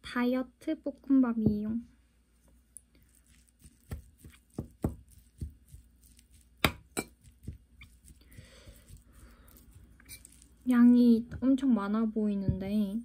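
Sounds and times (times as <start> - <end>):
spoon scraping ceramic bowl: 3.0 - 10.7.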